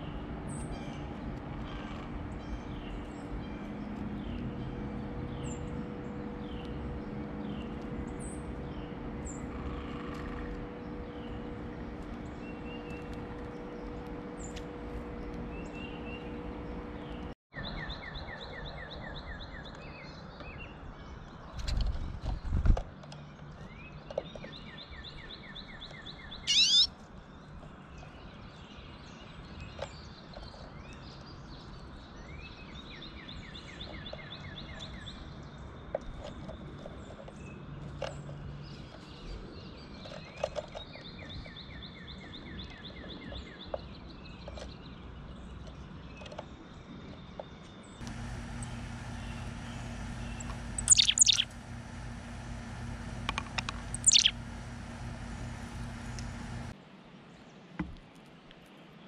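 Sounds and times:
songbird trilling: 26.4s - 26.9s, 48.4s - 56.4s
sharp rising squeak: 26.5s - 26.9s, 50.8s - 51.5s, 53.9s - 54.4s.

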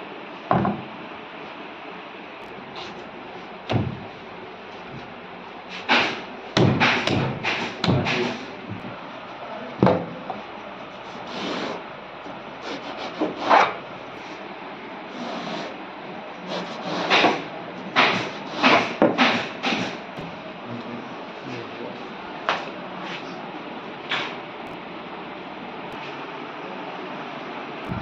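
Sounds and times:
knocks on a wooden workbench: 0.5s - 0.9s, 3.7s - 4.1s
saw cutting through foam: 11.0s - 11.8s, 16.4s - 17.3s.

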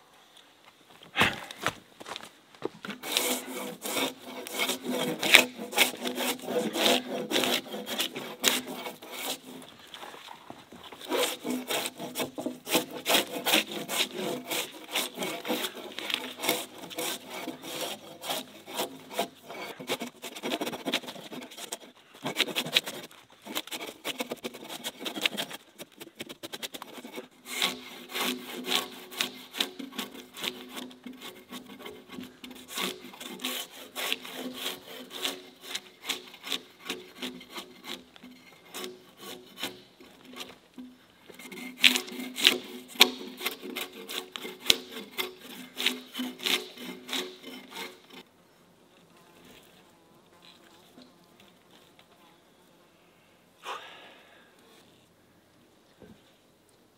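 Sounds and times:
hand saw cutting log: 2.8s - 48.2s
drawknife scraping bark: 2.9s - 48.2s.

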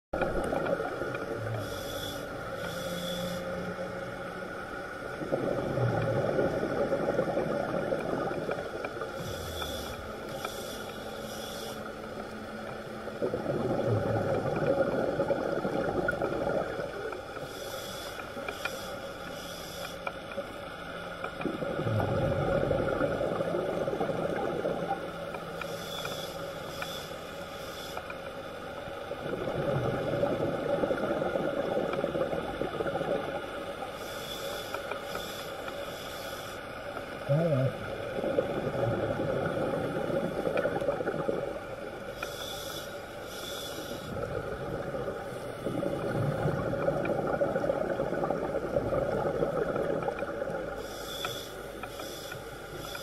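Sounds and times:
regulator hissing inhales: 1.6s - 3.6s, 9.2s - 11.9s, 17.5s - 20.0s, 25.6s - 28.0s, 42.2s - 44.1s, 50.8s - 53.0s
bubbling exhales: 37.2s - 41.6s.

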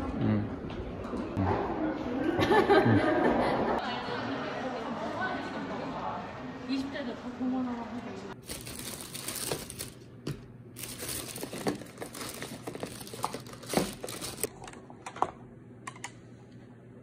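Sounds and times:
crinkling and rustling: 8.4s - 14.6s.

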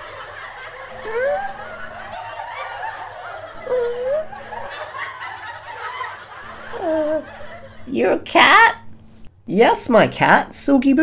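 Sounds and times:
audience laughing: 0.0s - 8.2s.

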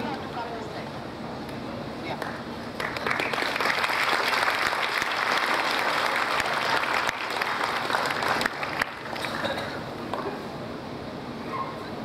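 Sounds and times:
crowd applauding: 2.8s - 9.6s.

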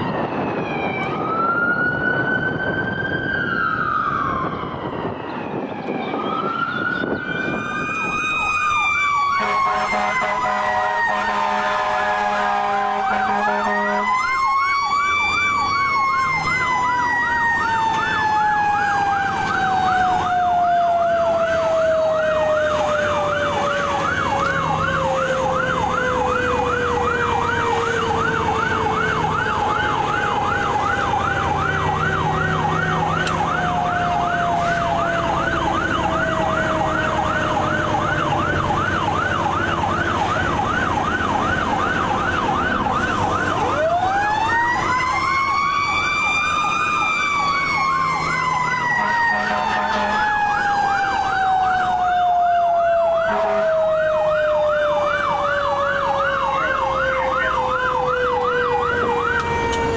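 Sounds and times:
electronic siren yelping: 0.0s - 59.9s
siren tone falling in pitch: 0.0s - 59.9s
siren winding up: 13.1s - 59.9s.

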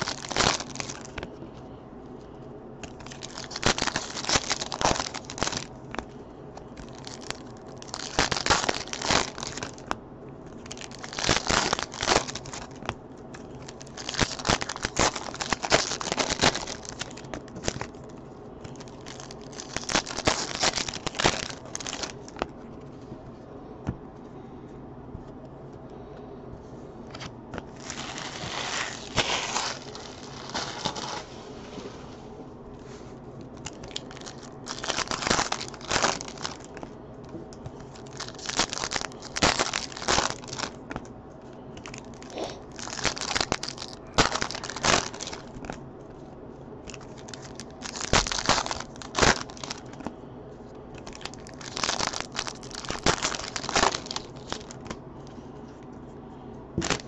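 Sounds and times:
foil wrappers crinkling and tearing: 0.0s - 1.4s, 2.8s - 22.5s, 27.1s - 31.8s, 33.5s - 37.0s, 37.6s - 41.1s, 41.8s - 45.8s, 46.8s - 50.2s, 50.9s - 55.0s, 56.8s - 57.0s.

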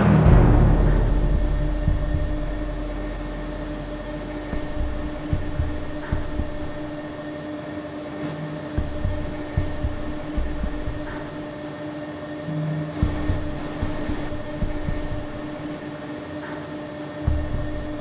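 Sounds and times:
soft low thumps: 0.0s - 7.3s, 8.8s - 11.6s, 13.0s - 15.8s, 17.3s - 18.0s
thin high whine: 0.0s - 7.4s
boiler room mechanical hum: 0.0s - 18.0s.

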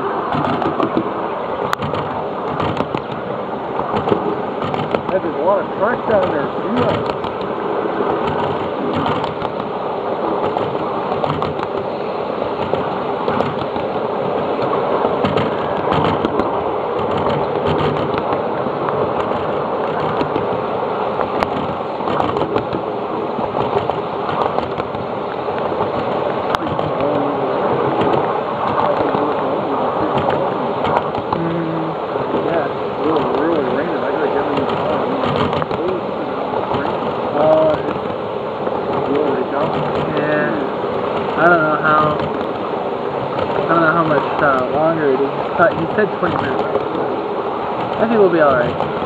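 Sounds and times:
wheel clicks on rail joints: 0.0s - 1.1s, 1.7s - 3.2s, 3.8s - 5.3s, 6.1s - 7.6s, 8.2s - 9.8s, 10.4s - 11.9s, 12.5s - 14.0s, 14.6s - 20.6s, 21.2s - 27.2s, 27.9s - 29.4s, 30.0s - 31.5s, 34.5s - 35.9s, 36.6s - 42.6s, 45.4s - 47.0s, 47.7s - 49.0s
steel wheels rumbling on rail: 0.0s - 49.0s.

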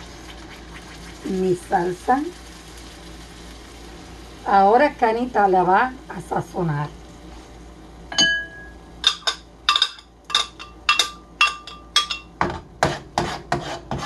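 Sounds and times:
utensils clinking on cookware: 8.1s - 12.6s.

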